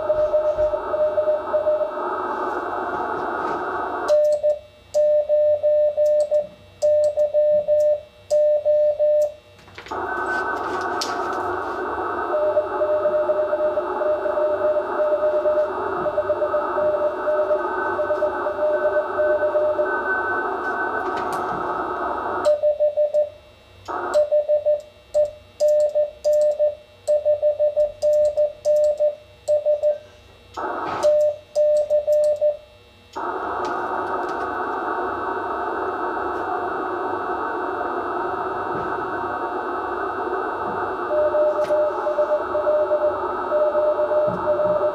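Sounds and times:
morse code beeps: 0:00.0 - 0:01.9, 0:04.1 - 0:09.3, 0:12.3 - 0:21.1, 0:22.4 - 0:23.3, 0:24.2 - 0:30.1, 0:31.0 - 0:32.6, 0:41.0 - 0:44.9
radio band hiss: 0:00.0 - 0:04.1, 0:09.8 - 0:22.4, 0:30.6 - 0:31.2, 0:33.2 - 0:44.9.

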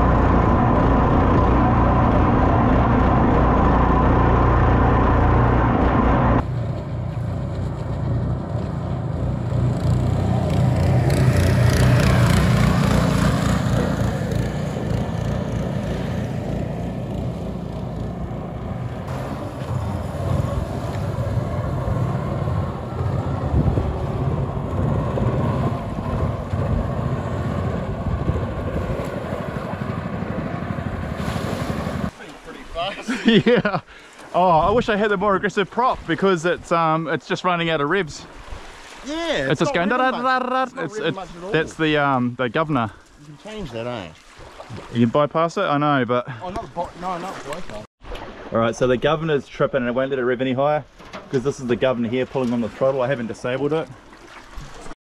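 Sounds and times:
boat motor running flat out: 0:00.0 - 0:32.1.

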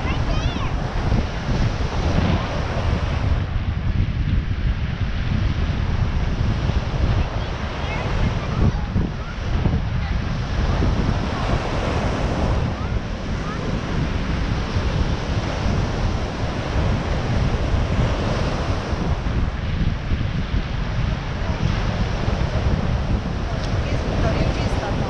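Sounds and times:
ocean surf breaking on beach: 0:00.0 - 0:25.0
wind buffeting microphone: 0:00.0 - 0:25.0.

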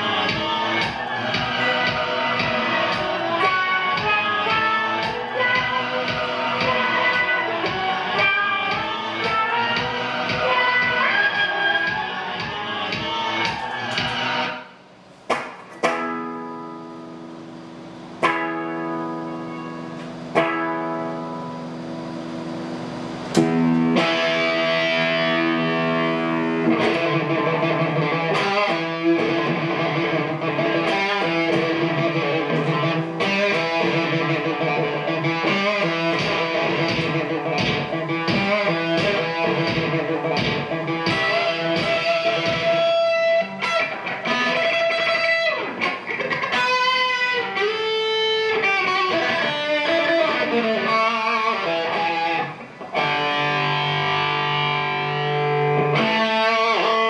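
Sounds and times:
electric guitar improvisation: 0:00.0 - 0:14.8, 0:15.5 - 0:57.0.

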